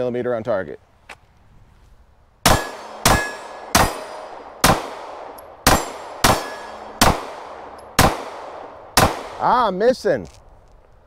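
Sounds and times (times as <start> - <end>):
pistol shots: 2.4 - 9.8.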